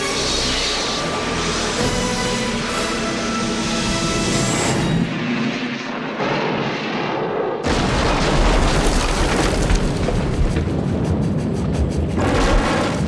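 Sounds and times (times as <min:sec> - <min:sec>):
deep rumble: 0:05.2 - 0:13.0
loud explosion blast: 0:06.0 - 0:11.0
crashing debris: 0:07.7 - 0:10.6.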